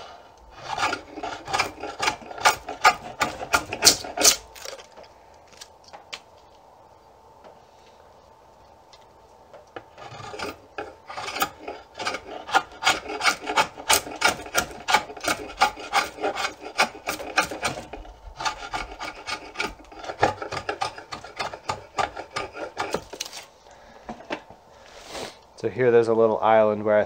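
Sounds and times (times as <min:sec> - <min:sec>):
draw knife shaving wood: 0:00.0 - 0:05.7, 0:09.8 - 0:23.5.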